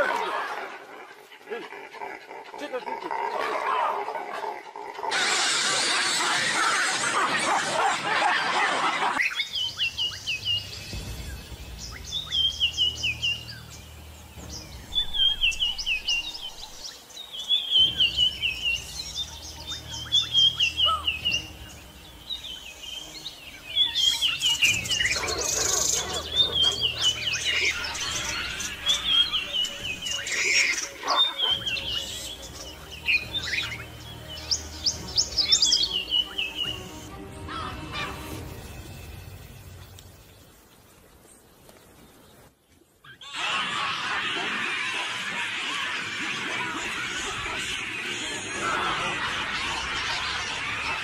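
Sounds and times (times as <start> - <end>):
bird calling descending chirps: 9.1 - 39.7.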